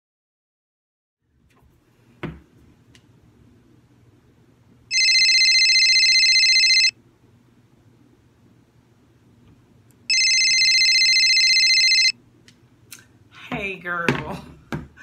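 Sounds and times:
mobile phone ringing: 0:04.9 - 0:07.0, 0:10.1 - 0:12.2.

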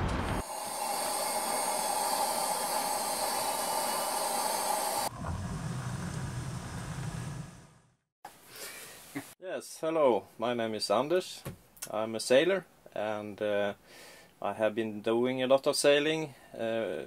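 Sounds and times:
hot water pouring into mug: 0:00.4 - 0:07.3
kettle hissing on gas burner: 0:00.4 - 0:07.8.

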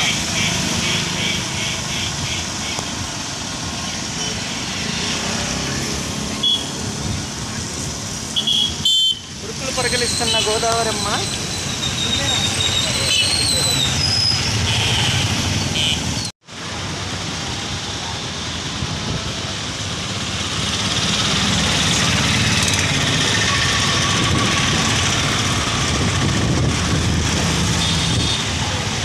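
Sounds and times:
road traffic with engine hum: 0:00.0 - 0:29.0.

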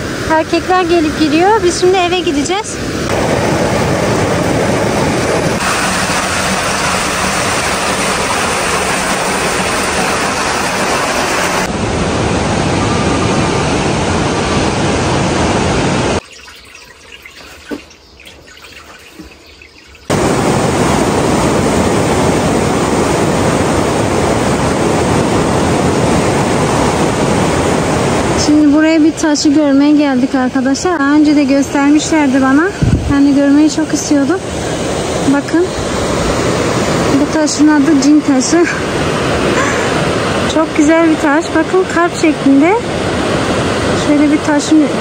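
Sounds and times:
river rapids rushing: 0:01.6 - 0:16.2, 0:20.1 - 0:28.5, 0:33.9 - 0:45.0.

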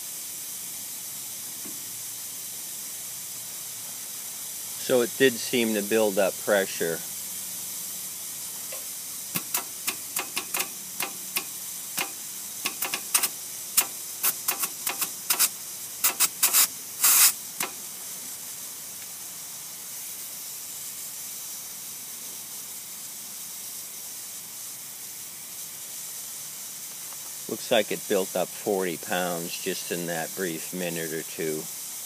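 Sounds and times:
compressed air hissing: 0:00.0 - 0:32.0
valve fitting spurts and clicks: 0:08.4 - 0:18.2, 0:26.8 - 0:27.5.

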